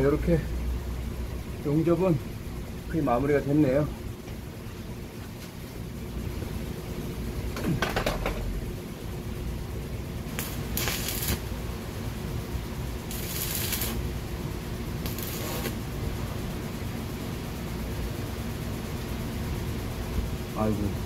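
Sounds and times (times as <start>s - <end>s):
low hum: 0.0s - 21.0s
welding arc crackling: 10.1s - 16.4s.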